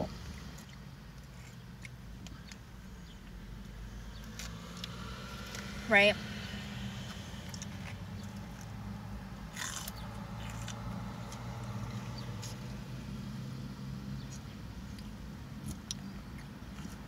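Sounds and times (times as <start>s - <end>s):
chewing salad: 0.1s - 3.3s, 9.4s - 12.8s, 14.2s - 17.0s.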